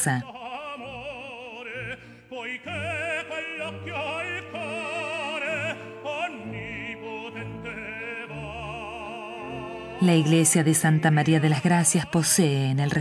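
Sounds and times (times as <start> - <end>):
operatic voice singing: 0.0 - 13.0
orchestral accompaniment: 2.6 - 13.0.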